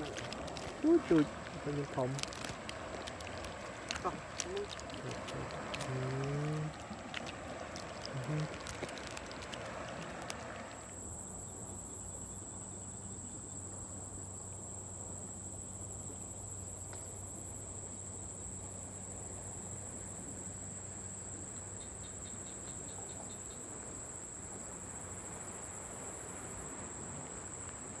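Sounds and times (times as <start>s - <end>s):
higher insect trill: 0.0s - 28.0s
insects trilling: 0.0s - 28.0s
quick ticks: 2.1s - 10.7s.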